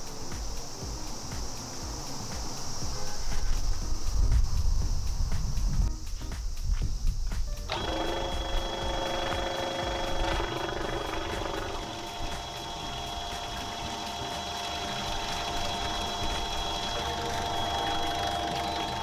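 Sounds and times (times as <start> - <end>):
pump motor whining: 7.7 - 19.0.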